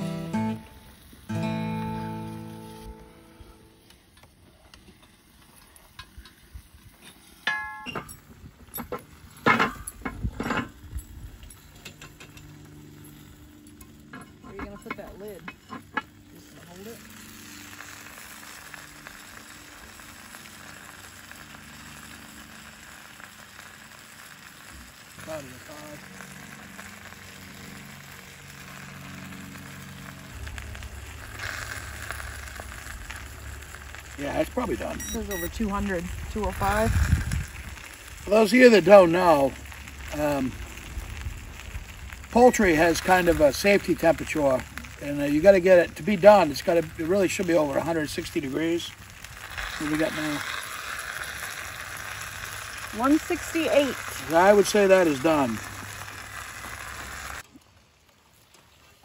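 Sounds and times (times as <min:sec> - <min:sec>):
low steady hum: 0:00.0 - 0:50.6
chicken sizzling: 0:00.0 - 0:59.0
cast iron pot clanking on metal: 0:07.4 - 0:12.6, 0:13.8 - 0:16.3.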